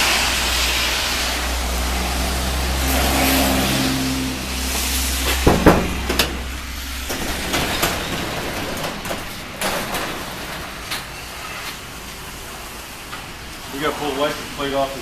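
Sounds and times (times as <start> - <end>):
garage door rattling on tracks: 4.4 - 13.7
garage door knocks and clunks: 5.2 - 11.2.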